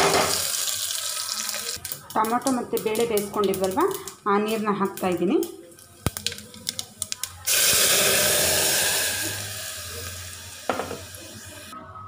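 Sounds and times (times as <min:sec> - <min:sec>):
hot oil crackling and popping: 0:00.0 - 0:11.4
loud sizzling hiss: 0:07.5 - 0:11.8.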